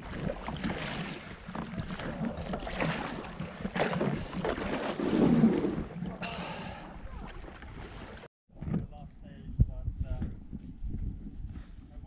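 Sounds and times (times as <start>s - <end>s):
paddle strokes splashing: 0.0s - 8.3s.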